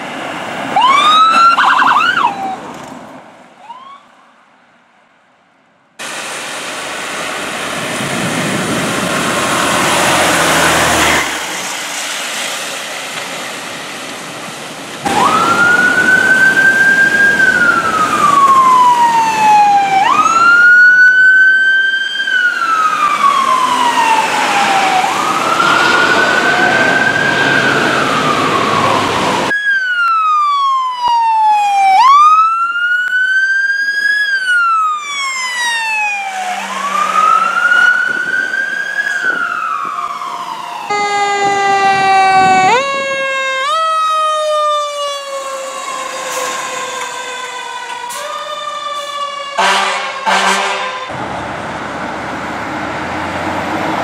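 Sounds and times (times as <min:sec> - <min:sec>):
fire truck sirens wailing: 0:00.0 - 0:04.4, 0:06.0 - 0:54.0
siren with stepped rises: 0:00.8 - 0:02.7, 0:03.6 - 0:04.2, 0:15.1 - 0:51.2
short siren blasts: 0:34.3 - 0:51.1.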